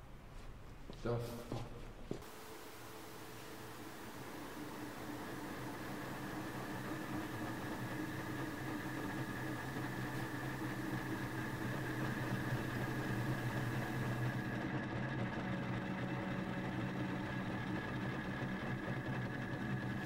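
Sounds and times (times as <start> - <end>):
steady low hum: 0.0 - 20.0
faint high whine: 2.2 - 14.7.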